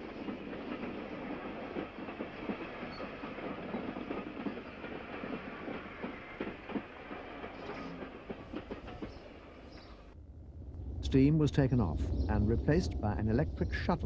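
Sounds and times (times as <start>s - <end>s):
train wheels clattering on track: 0.0s - 10.1s.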